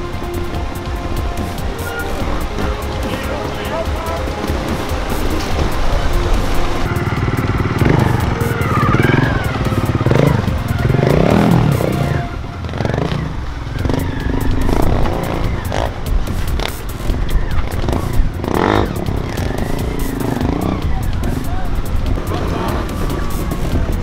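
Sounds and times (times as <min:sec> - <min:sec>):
motorcycle engine revving: 0:00.0 - 0:24.0
music playing: 0:00.0 - 0:24.0.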